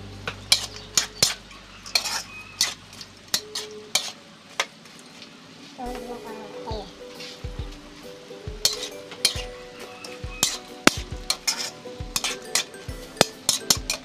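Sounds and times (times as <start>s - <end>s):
food sizzling: 0.0s - 14.0s
spatula scraping metal wok: 0.5s - 4.2s, 8.0s - 14.0s.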